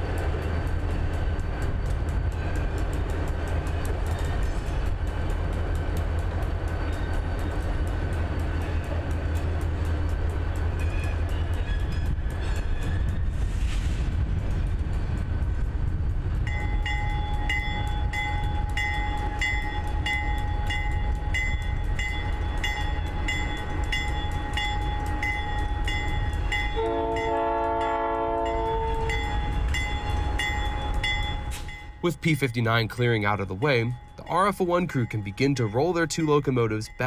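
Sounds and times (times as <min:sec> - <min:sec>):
diesel locomotive rumbling: 0:00.0 - 0:37.0
locomotive bell ringing: 0:16.5 - 0:37.0
locomotive horn chord: 0:26.8 - 0:29.2.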